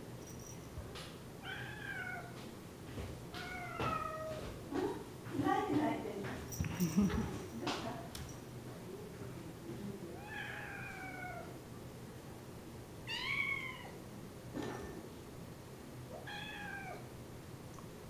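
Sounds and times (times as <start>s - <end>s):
cat meowing: 1.4s - 2.3s, 10.2s - 11.6s, 13.1s - 14.0s, 16.2s - 17.0s.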